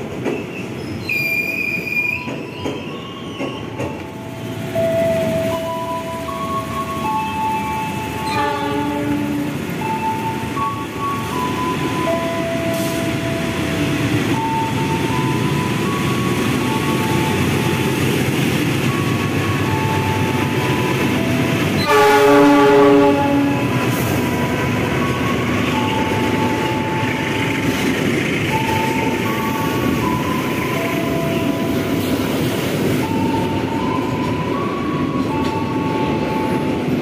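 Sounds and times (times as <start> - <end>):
freight train rumbling past: 0.0 - 37.0
train horn: 8.2 - 9.6, 21.8 - 24.1.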